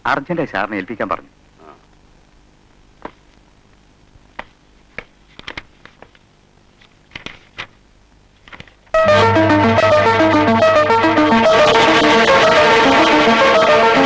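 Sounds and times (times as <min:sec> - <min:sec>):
faint steady hiss: 0:00.0 - 0:13.4
pages rustling: 0:04.4 - 0:07.8, 0:08.4 - 0:08.9.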